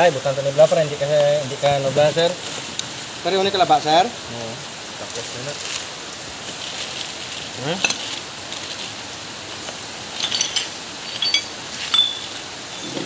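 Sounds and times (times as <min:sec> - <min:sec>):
steady background hiss: 0:00.0 - 0:13.0
small metal parts clinking: 0:10.1 - 0:13.0.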